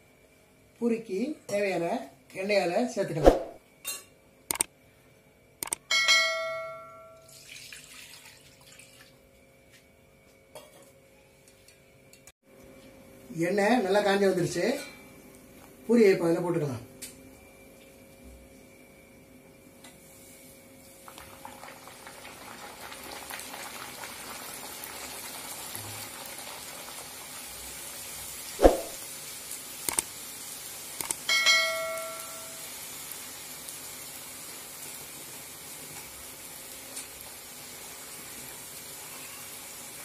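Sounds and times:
short ringing tone: 5.9s - 7.3s, 31.3s - 32.6s
dough deep-frying in hot oil: 5.9s - 10.3s, 17.6s - 40.0s.

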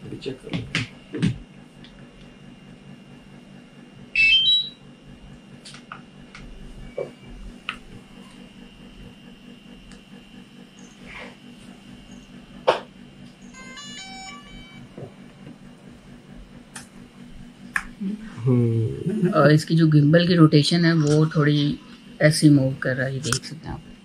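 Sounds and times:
steady low hum: 0.0s - 24.0s
stepped startup tones: 13.4s - 15.8s.

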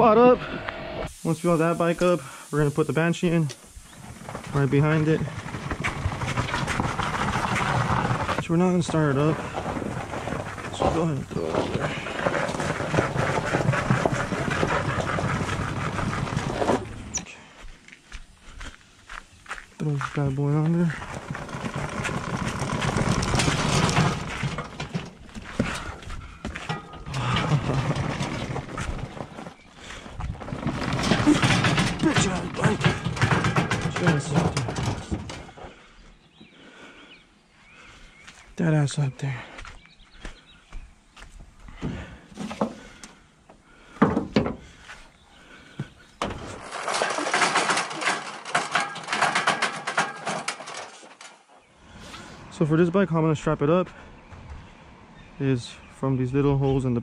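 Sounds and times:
rattling scraping noise: 1.3s - 17.3s, 19.8s - 35.9s, 43.8s - 53.0s
quad bike clattering on metal ramps: 4.0s - 17.2s, 20.5s - 35.8s, 43.8s - 44.8s, 45.8s - 51.5s
atv thumping in truck bed: 21.0s - 35.6s, 46.2s - 50.9s.

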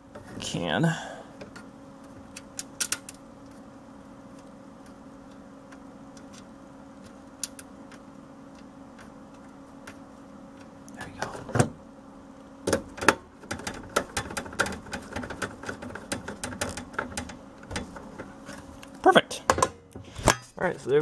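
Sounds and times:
steady low hum: 0.0s - 21.0s
fan clicking into metal case: 1.4s - 3.2s, 5.7s - 8.0s, 12.6s - 18.6s.

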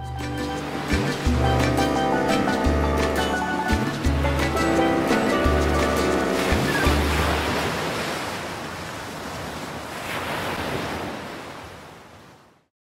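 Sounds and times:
outro music: 0.0s - 7.4s
ocean surf rushing: 0.2s - 12.5s.

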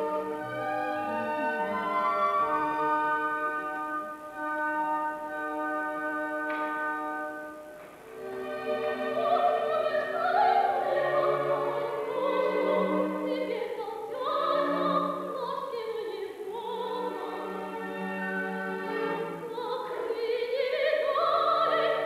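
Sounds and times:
orchestra playing: 0.0s - 10.0s
woman singing opera: 8.2s - 17.6s, 19.2s - 22.0s.

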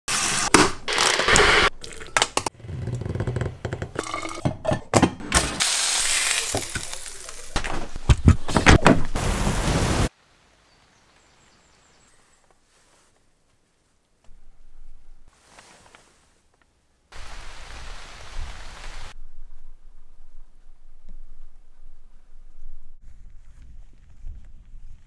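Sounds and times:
hot pan sizzling: 5.6s - 7.6s.

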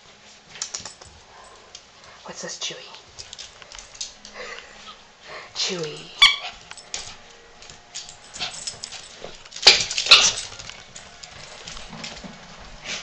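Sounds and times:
dog claws clicking on tile: 0.5s - 1.8s, 3.2s - 4.4s.

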